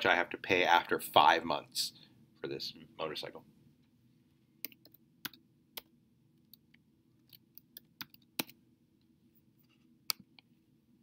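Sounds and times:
computer keyboard typing: 0:07.3 - 0:08.6.

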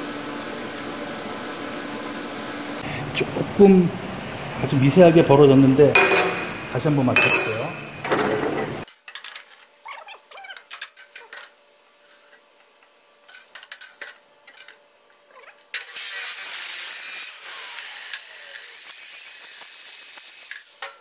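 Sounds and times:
abrasive saw cutting steel: 0:15.8 - 0:20.8.

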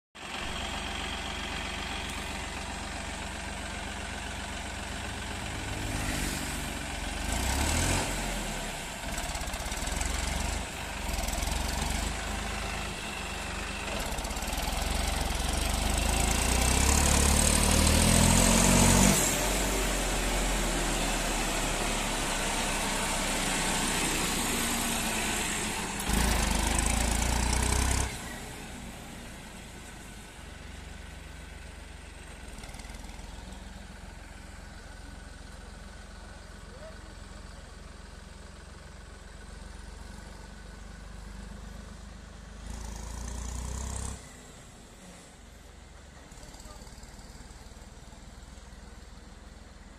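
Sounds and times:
tractor diesel engine revving: 0:00.2 - 0:48.4.

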